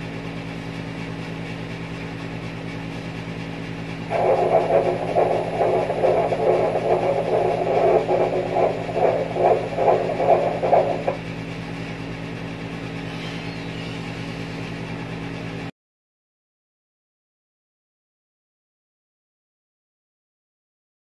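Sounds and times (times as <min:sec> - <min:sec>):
steady low hum: 0:02.5 - 0:15.7
doppler heartbeat pulsing: 0:04.1 - 0:11.2.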